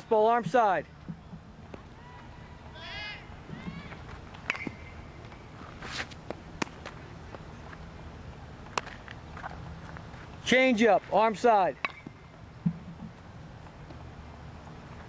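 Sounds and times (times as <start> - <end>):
footsteps: 3.5 - 7.8
ball popping into mitt: 11.8 - 13.2.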